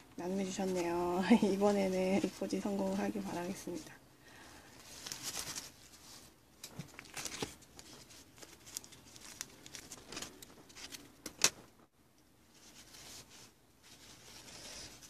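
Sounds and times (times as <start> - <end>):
paper towel rustling and crinkling: 0.0 - 11.7, 12.4 - 15.0.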